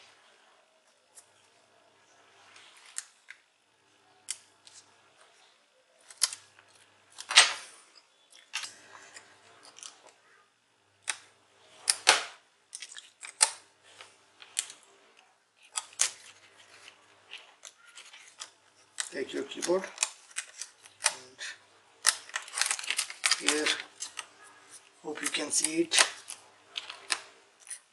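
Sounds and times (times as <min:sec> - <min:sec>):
plastic laptop parts clicking: 0:11.9 - 0:13.6, 0:15.6 - 0:21.3, 0:22.0 - 0:24.3, 0:25.2 - 0:27.9.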